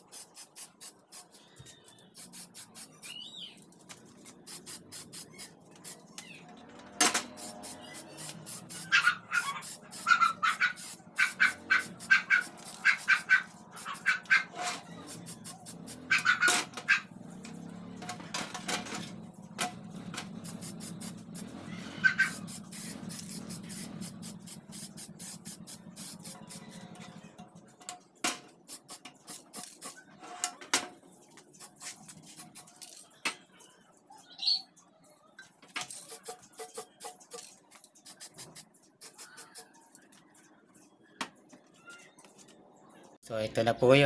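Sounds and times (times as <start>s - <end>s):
spray paint hissing: 0.0s - 3.5s, 4.2s - 6.2s, 7.2s - 16.5s, 20.3s - 26.9s, 28.6s - 30.0s, 31.5s - 33.0s, 35.9s - 39.8s
spray can mixing ball rattling: 0.0s - 6.2s, 7.2s - 16.2s, 20.2s - 27.0s, 28.6s - 30.0s, 31.4s - 33.2s, 35.7s - 39.8s.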